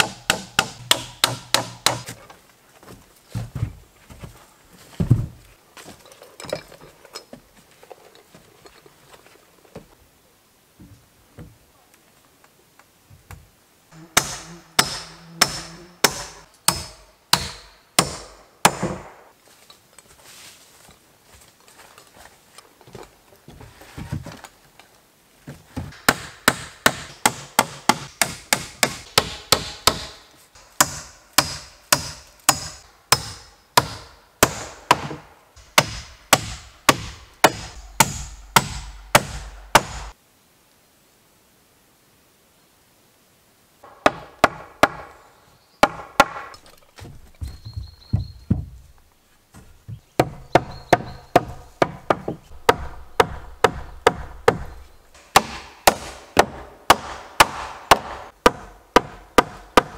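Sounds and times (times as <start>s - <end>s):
hammer striking nails into wood: 0.0s - 2.1s, 14.2s - 19.2s, 25.9s - 40.1s, 43.9s - 45.1s, 45.8s - 46.5s, 50.2s - 59.9s.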